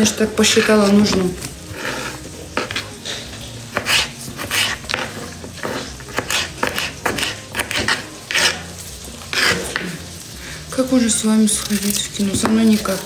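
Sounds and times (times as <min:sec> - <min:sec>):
knife slicing cucumber on board: 0:03.7 - 0:08.6.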